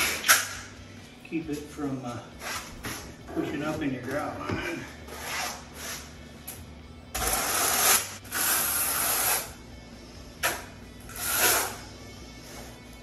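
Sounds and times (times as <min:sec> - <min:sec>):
trowel scraping mortar: 0:07.2 - 0:09.5, 0:11.2 - 0:11.8.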